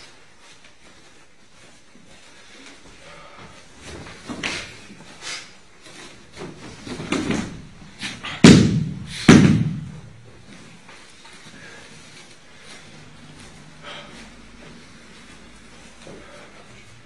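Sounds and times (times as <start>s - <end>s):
bodies thudding on floor mat: 5.9s - 11.0s.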